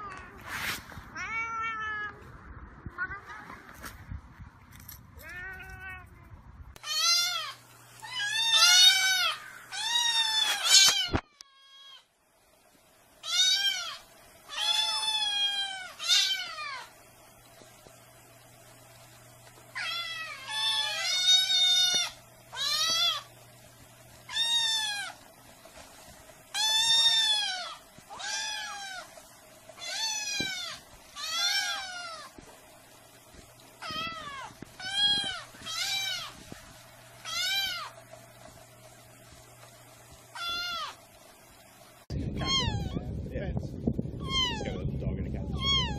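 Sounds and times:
kittens meowing: 6.8 - 12.1, 13.2 - 16.9, 19.7 - 23.3, 24.3 - 25.2, 26.5 - 29.1, 29.8 - 32.4, 33.8 - 36.4, 37.2 - 38.0, 40.3 - 41.0, 42.2 - 43.1, 44.2 - 44.8, 45.5 - 45.9.

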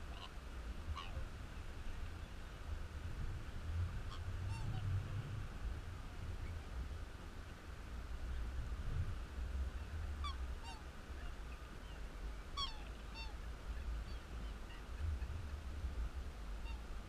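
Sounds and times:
swans honking: 0.0 - 1.2, 4.1 - 5.0, 10.2 - 15.7, 16.5 - 17.0
wind rumble on microphone: 0.0 - 17.0.

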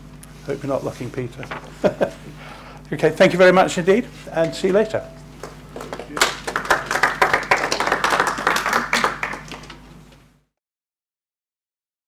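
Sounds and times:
audience clapping: 5.4 - 10.0.

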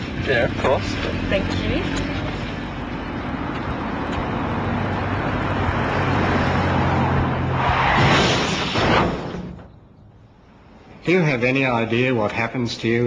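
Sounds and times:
car engine hum: 0.0 - 8.0
road noise: 0.0 - 13.0.

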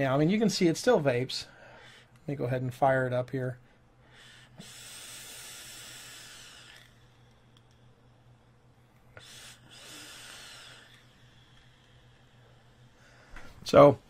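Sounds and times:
airy hiss of vape draws: 4.5 - 7.5, 9.1 - 13.0.

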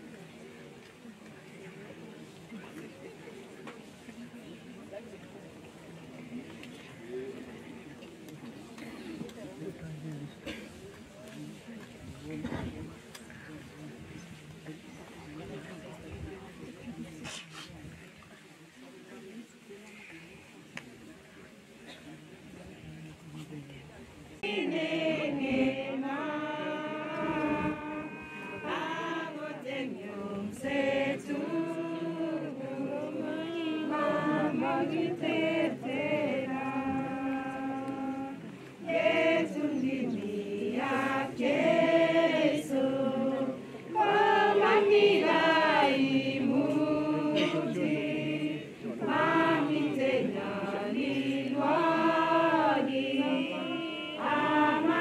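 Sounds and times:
group singing unaccompanied: 24.4 - 55.0.

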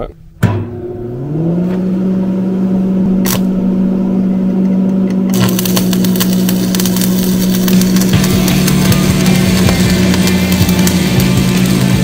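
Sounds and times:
engine running steadily: 0.4 - 12.0
welding arc crackling: 3.1 - 4.0, 5.3 - 12.0.

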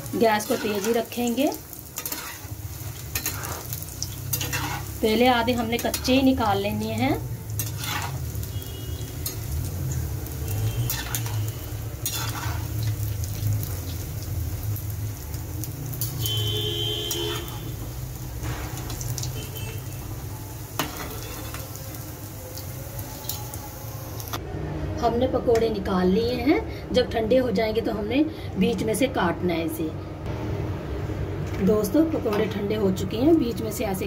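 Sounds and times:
fritters sizzling in hot oil: 0.0 - 24.4
metal spoon clinking on pan: 2.0 - 2.5, 9.2 - 9.5.

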